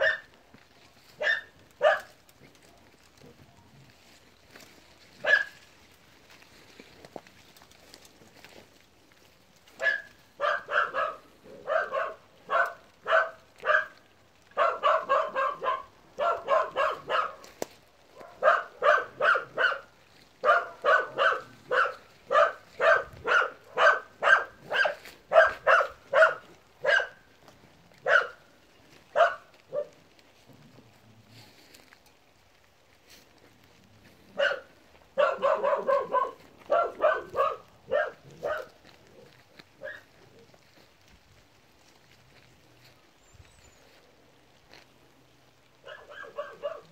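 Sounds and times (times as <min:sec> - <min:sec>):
dog barking: 0:00.0 - 0:00.4, 0:01.1 - 0:02.2, 0:05.2 - 0:05.7, 0:09.7 - 0:27.3, 0:28.0 - 0:28.5, 0:29.1 - 0:30.0, 0:34.3 - 0:40.4, 0:45.8 - 0:46.9.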